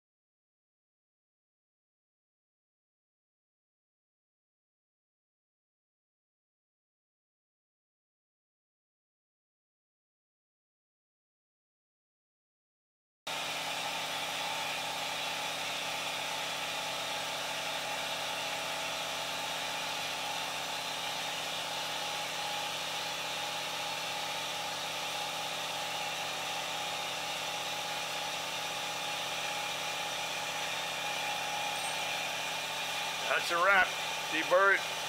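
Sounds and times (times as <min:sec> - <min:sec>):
milling machine humming: 0:13.3 - 0:35.0.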